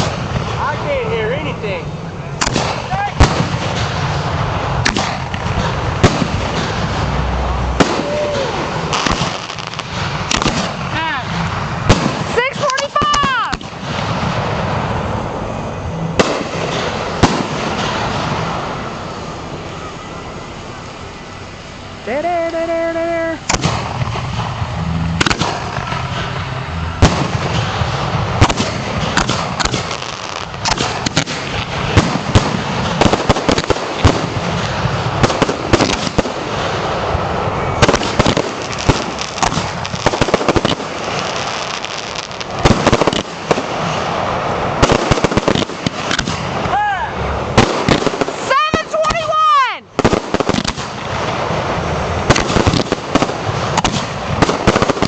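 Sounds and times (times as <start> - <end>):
fireworks bangs and crackles: 0.0 - 55.0
fireworks launch thumps: 2.4 - 15.2, 16.2 - 18.7, 23.4 - 36.8, 44.8 - 46.8, 47.5 - 49.3.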